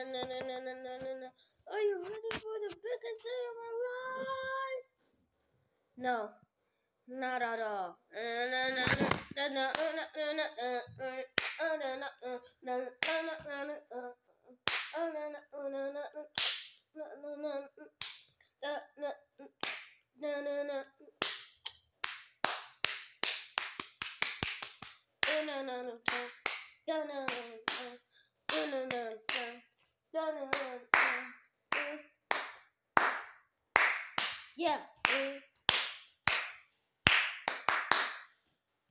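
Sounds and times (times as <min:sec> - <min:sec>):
high-pitched voice singing: 0:00.0 - 0:04.9, 0:08.5 - 0:14.3, 0:25.2 - 0:32.2
hand claps: 0:11.4 - 0:11.6, 0:14.7 - 0:15.0, 0:16.3 - 0:16.8, 0:18.0 - 0:18.3, 0:19.6 - 0:20.0, 0:21.2 - 0:27.9, 0:28.5 - 0:29.6, 0:30.5 - 0:38.4.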